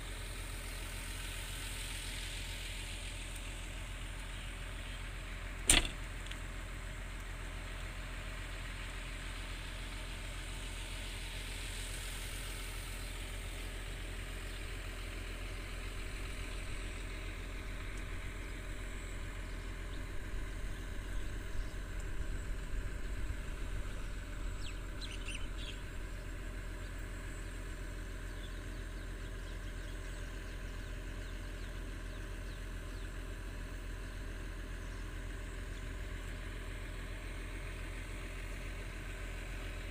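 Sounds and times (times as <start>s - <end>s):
diesel excavator engines idling: 0.0s - 39.9s
sharp click: 5.6s - 6.4s
bird chirps: 24.0s - 26.0s, 28.2s - 33.2s.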